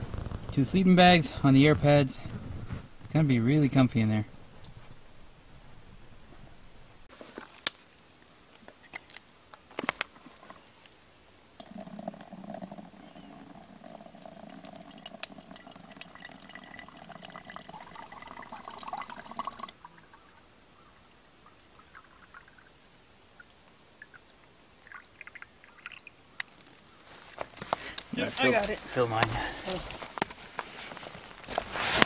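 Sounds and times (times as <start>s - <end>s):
liquid pouring into container: 11.6s - 20.1s, 21.8s - 22.8s, 24.8s - 26.2s.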